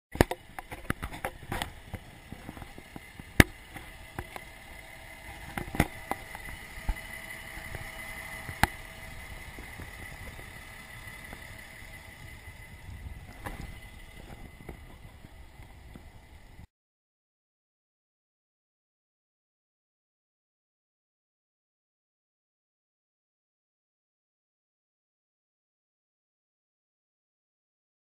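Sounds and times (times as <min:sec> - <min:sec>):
vehicle engine running: 0:00.1 - 0:16.7
faint high whine: 0:00.2 - 0:16.7.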